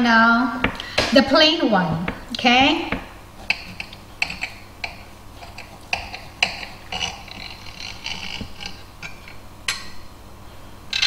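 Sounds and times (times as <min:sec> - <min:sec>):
knife sawing through bread: 0:05.4 - 0:08.9.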